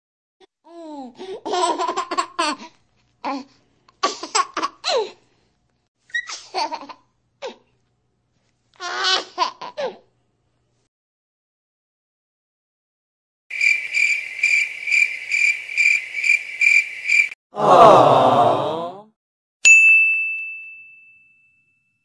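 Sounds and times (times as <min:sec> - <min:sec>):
small child laughing: 0:01.2 - 0:05.2, 0:06.1 - 0:07.7, 0:08.8 - 0:10.0.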